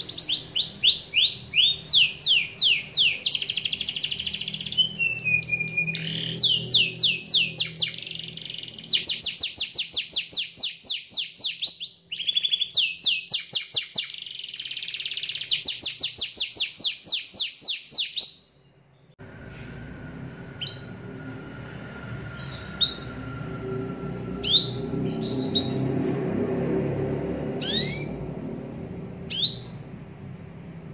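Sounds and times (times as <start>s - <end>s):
canary singing trills: 0.0s - 19.8s, 20.5s - 21.2s, 22.1s - 26.0s, 27.6s - 28.4s, 29.2s - 30.1s
low background hum: 18.5s - 30.9s.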